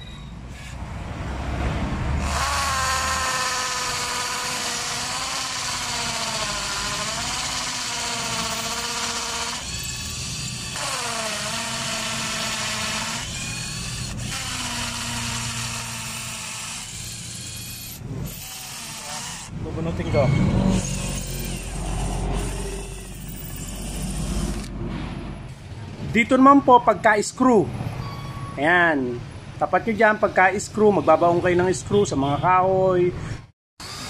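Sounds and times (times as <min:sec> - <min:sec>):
hammer drill boring into concrete: 0:02.2 - 0:19.5, 0:20.7 - 0:24.7.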